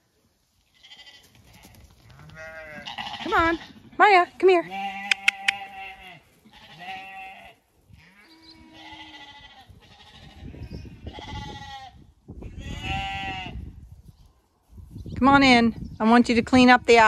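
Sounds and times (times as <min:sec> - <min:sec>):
sheep bleating: 0:00.8 - 0:03.8, 0:04.4 - 0:12.0, 0:12.6 - 0:13.6.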